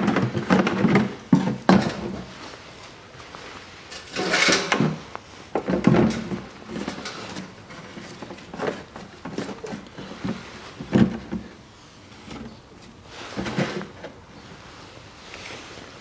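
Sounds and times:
plastic canister knocks and rustles: 0:00.0 - 0:02.3, 0:05.6 - 0:11.5.

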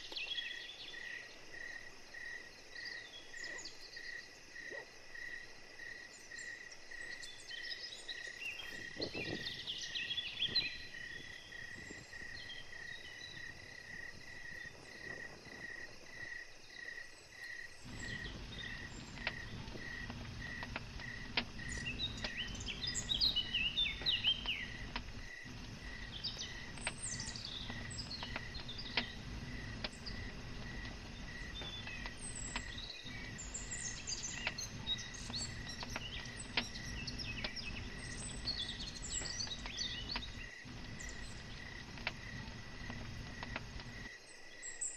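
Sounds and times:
campfire crackling: 0:00.0 - 0:44.9
insect chirping: 0:00.0 - 0:44.9
songbirds calling: 0:00.0 - 0:44.9.

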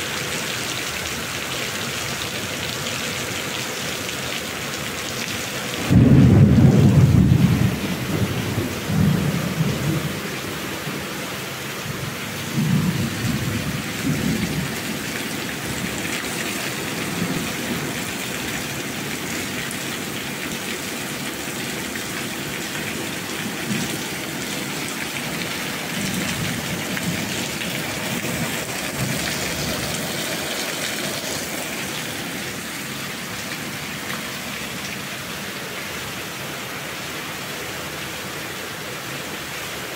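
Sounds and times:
steady rain: 0:00.0 - 0:39.9
thunder rumbling: 0:05.8 - 0:10.6, 0:12.5 - 0:15.0, 0:25.3 - 0:31.8.

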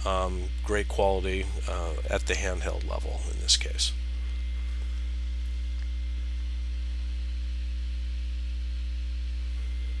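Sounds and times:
electrical mains hum: 0:00.0 - 0:10.0.

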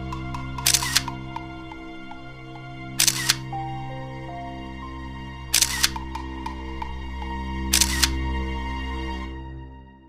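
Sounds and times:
burst of sharp clicks: 0:00.1 - 0:01.5, 0:05.6 - 0:06.6.

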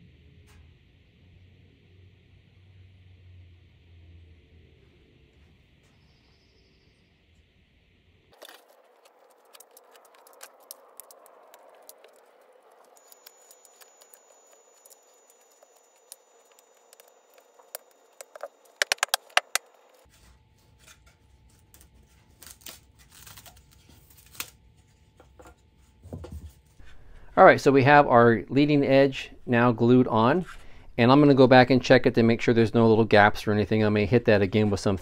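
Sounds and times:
sharp clicks: 0:12.9 - 0:19.9
small clicks and taps: 0:13.1 - 0:19.6.

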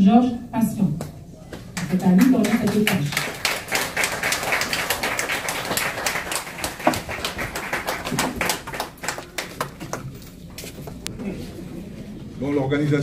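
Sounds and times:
people applauding: 0:01.7 - 0:10.2.

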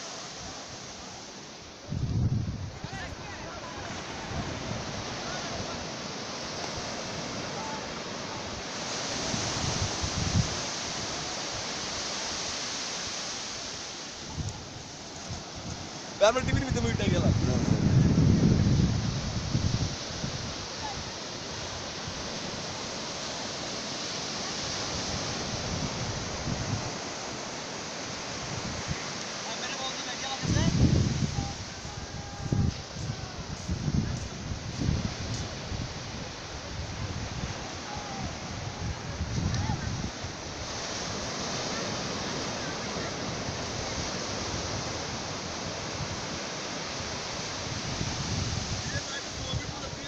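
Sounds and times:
surf breaking on beach: 0:00.0 - 0:50.0
wind rumble on microphone: 0:01.8 - 0:05.8, 0:09.0 - 0:11.2, 0:14.3 - 0:22.9, 0:24.6 - 0:27.2, 0:30.4 - 0:50.0.

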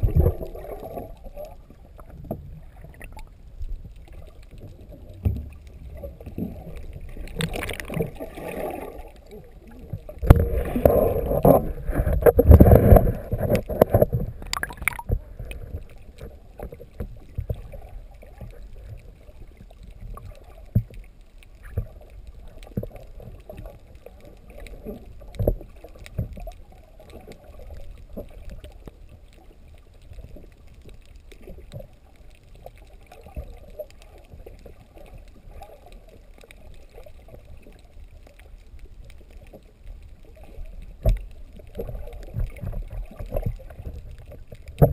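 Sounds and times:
muffled underwater rush: 0:00.0 - 0:44.9
water splashing and churning: 0:00.0 - 0:44.9
small clicks and knocks: 0:11.4 - 0:19.0.

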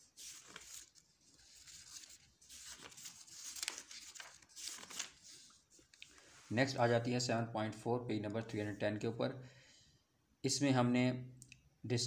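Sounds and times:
book pages turning: 0:00.0 - 0:06.5.

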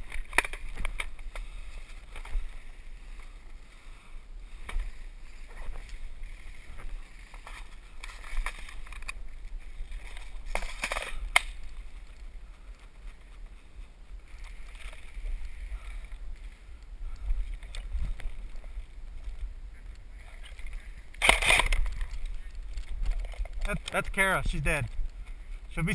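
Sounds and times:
rustling and crunching in undergrowth: 0:00.0 - 0:25.9.

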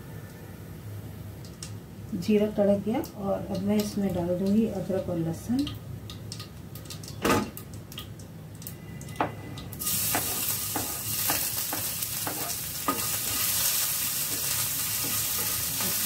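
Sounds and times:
oil sizzling in a frying pan: 0:09.8 - 0:16.0.

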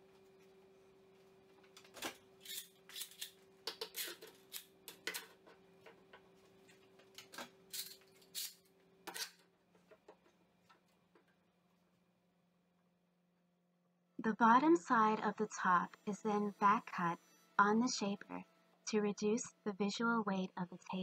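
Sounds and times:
faint steady hum: 0:00.0 - 0:21.0
metal clamps clicking and scraping: 0:07.2 - 0:09.4.

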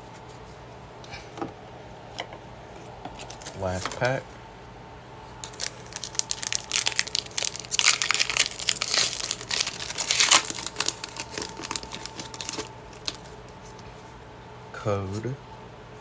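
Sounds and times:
foil wrapper crinkling and tearing: 0:05.4 - 0:13.4.

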